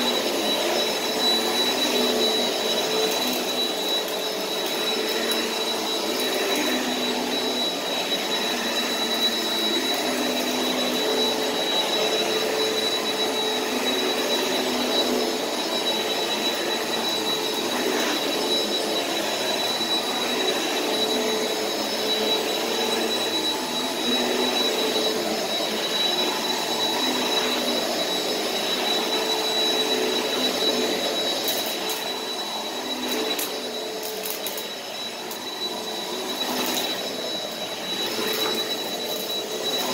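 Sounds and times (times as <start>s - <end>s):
vacuum cleaner running on carpet: 0.0s - 39.9s.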